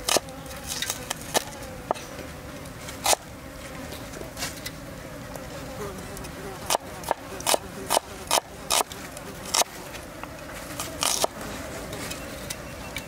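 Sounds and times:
buzz of flying insects: 0.0 - 13.0
cleaver chopping on wooden board: 6.7 - 8.9.

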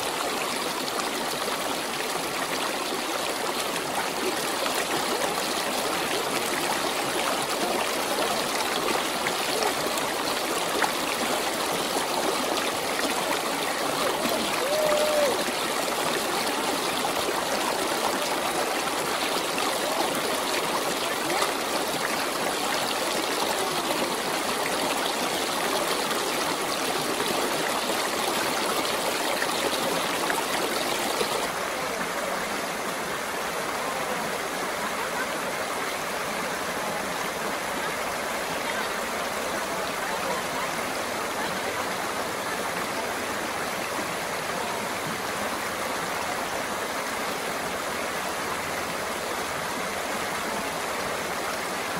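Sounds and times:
river rushing over rocks: 0.0 - 51.9.

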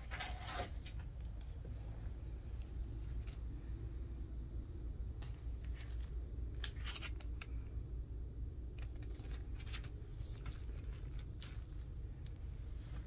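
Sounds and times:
steady low hum: 0.0 - 13.0
plastic sleeve crinkling: 8.7 - 12.4.

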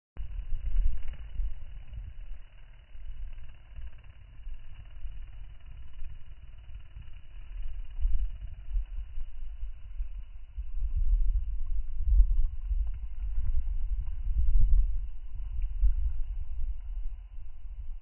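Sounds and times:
wind buffeting microphone: 7.0 - 18.0.

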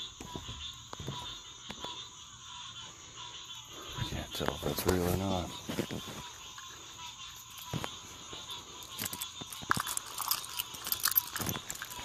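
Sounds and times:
footsteps crunching on ground: 4.0 - 6.6
sharp clicks and crackles: 8.8 - 12.0.

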